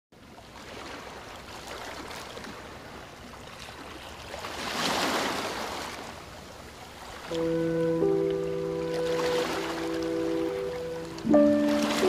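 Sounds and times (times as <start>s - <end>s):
water lapping and rippling: 0.2s - 12.0s.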